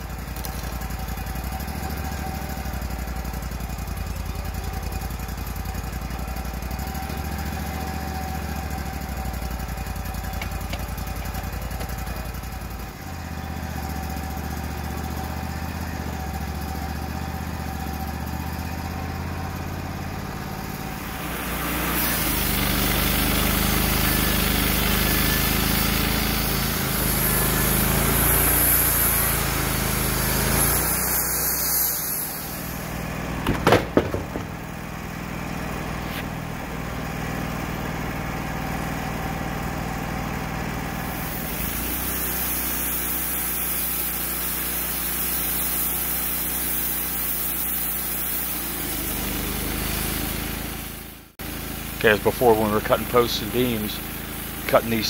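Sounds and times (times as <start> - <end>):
band saw cutting log: 0.0 - 34.9, 35.8 - 36.4, 40.9 - 55.0
sawmill engine running: 0.0 - 55.0
clatter of knocks: 33.4 - 34.6.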